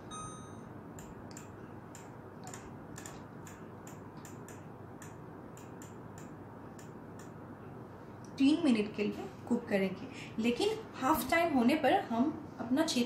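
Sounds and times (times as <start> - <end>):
microwave beep: 0.0 - 0.8.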